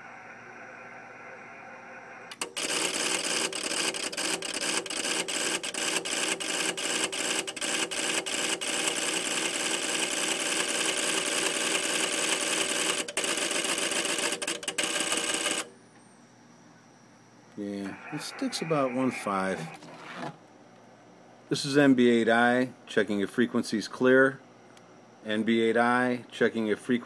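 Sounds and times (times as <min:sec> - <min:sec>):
relays chattering: 0:17.8 - 0:19.8.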